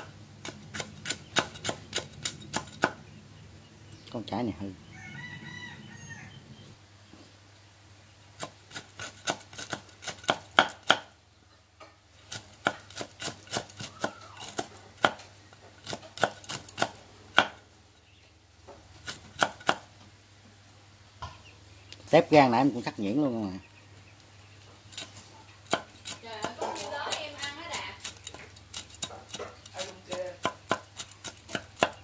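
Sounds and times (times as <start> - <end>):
cleaver chopping on wooden block: 0.0 - 3.0, 8.7 - 11.1, 12.3 - 15.2, 15.8 - 17.6, 19.0 - 19.9, 25.7 - 26.9, 29.0 - 32.0.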